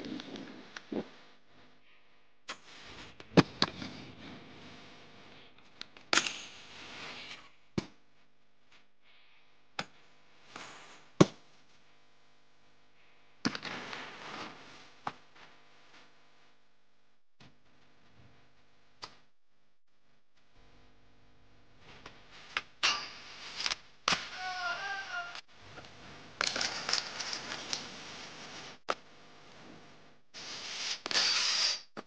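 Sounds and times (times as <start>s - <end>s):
skates landing with sharp smacks: 6.1s - 6.6s, 7.3s - 8.0s, 9.8s - 11.4s, 13.4s - 15.2s, 22.0s - 25.4s, 26.4s - 27.9s, 30.8s - 32.0s.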